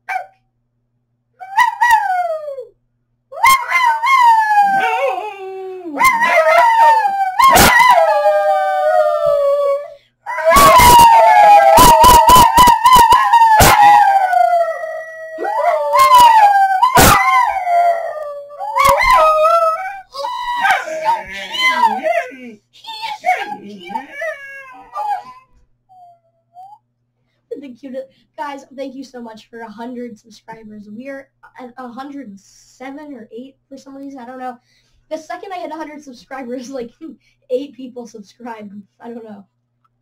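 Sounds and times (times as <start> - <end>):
dog howling: 1.4 - 2.6, 3.4 - 25.5
person howling: 3.4 - 25.4.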